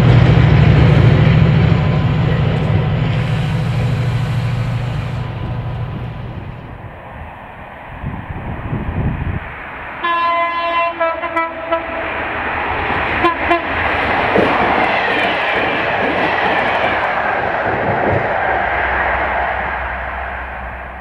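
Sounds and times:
train passing at speed: 0:00.0 - 0:21.0
train horn blast: 0:10.0 - 0:12.1, 0:13.2 - 0:13.8.

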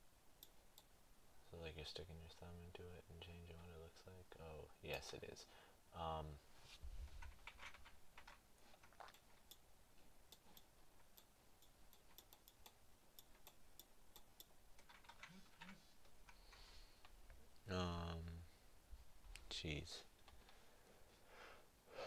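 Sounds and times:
computer controls clicking: 0:07.2 - 0:09.7, 0:10.3 - 0:17.2.

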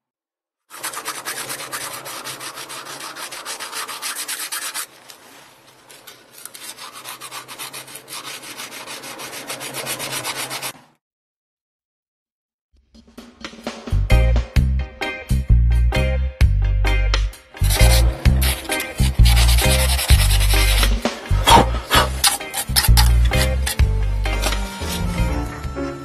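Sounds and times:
hand tool scraping metal threads: 0:00.7 - 0:10.7, 0:17.6 - 0:25.4.

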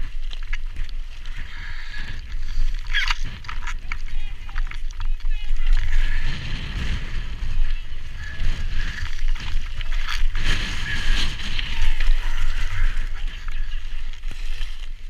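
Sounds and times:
bike tyres grinding over stone: 0:00.0 - 0:15.0
wind buffeting microphone: 0:00.0 - 0:15.0.

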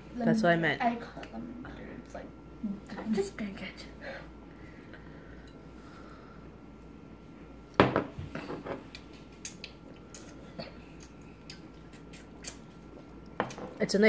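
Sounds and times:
glass bottle knocking on wooden table: 0:07.8 - 0:08.8.

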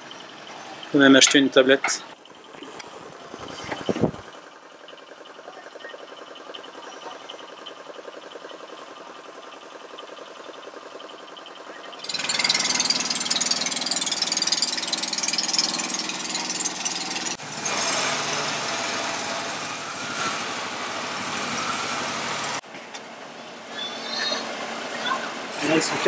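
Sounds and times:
motorboat engines running: 0:01.8 - 0:17.4.

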